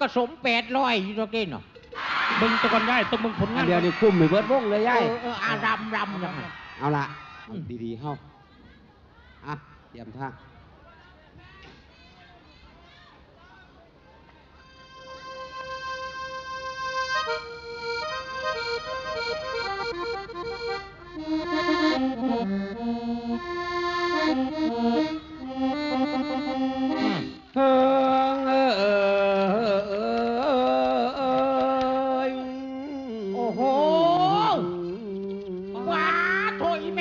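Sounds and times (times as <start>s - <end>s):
accordion melody: 3.4s - 6.1s, 14.6s - 37.0s
man singing long held note: 27.1s - 36.1s.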